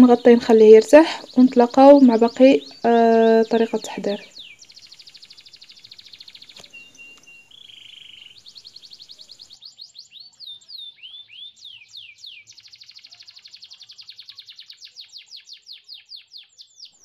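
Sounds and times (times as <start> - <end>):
songbird trills and whistles: 0.0 - 17.0.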